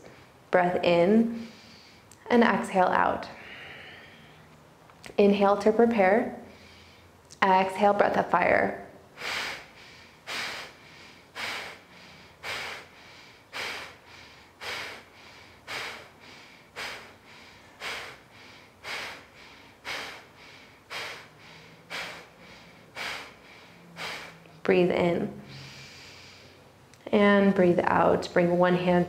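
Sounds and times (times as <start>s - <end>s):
forceful nasal exhales: 9.1s - 24.6s, 25.4s - 26.7s.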